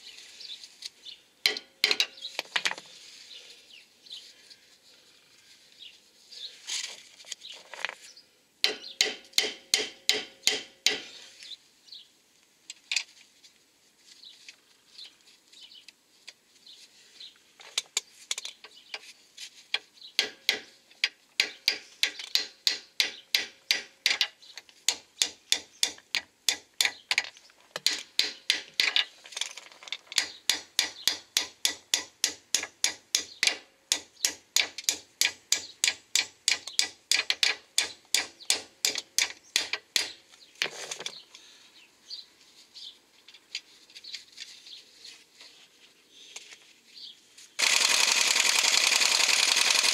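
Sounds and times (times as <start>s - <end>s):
hammer striking steel: 1.5s - 2.2s, 8.6s - 11.2s, 20.2s - 20.7s, 21.4s - 24.2s, 30.2s - 40.2s.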